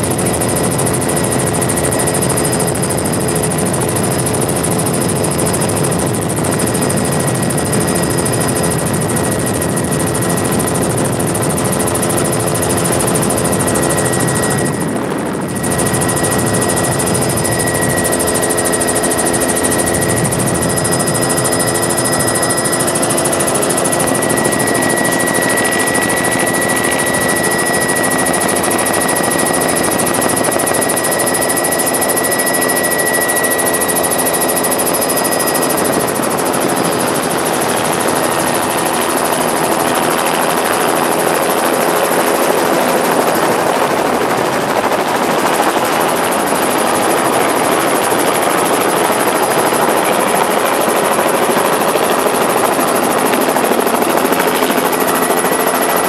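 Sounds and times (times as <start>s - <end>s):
helicopter engine and rotor: 0.0s - 56.0s
high thin whine: 11.3s - 37.6s.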